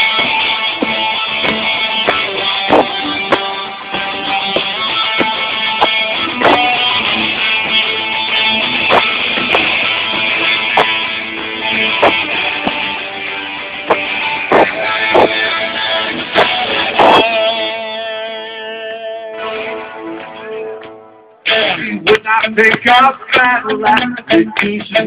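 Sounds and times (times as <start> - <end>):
strummed electric guitars: 0.0 - 25.0.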